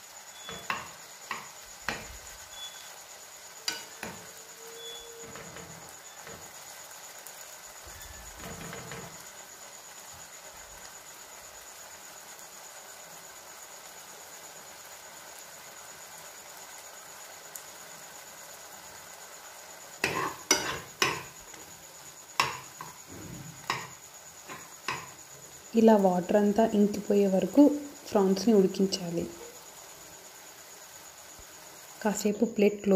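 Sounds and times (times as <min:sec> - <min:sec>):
prawns sizzling in a pan: 0:00.0 - 0:32.9
spatula scraping and knocking pan: 0:00.4 - 0:02.7, 0:03.6 - 0:06.6, 0:07.9 - 0:09.2, 0:20.0 - 0:21.8, 0:22.4 - 0:25.2.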